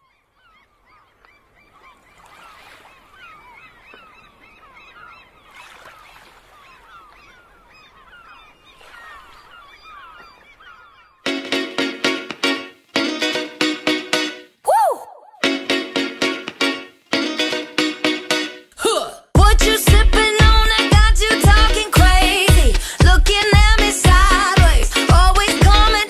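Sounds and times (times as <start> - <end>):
gulls calling: 0.0 - 14.0
loud music: 15.4 - 18.6, 19.4 - 26.0.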